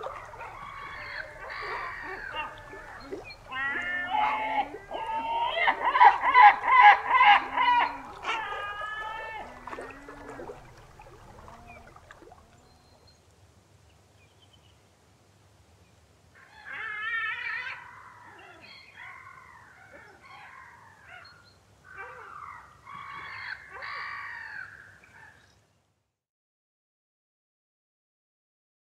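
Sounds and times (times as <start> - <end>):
gulls calling harshly: 0.0 - 12.5.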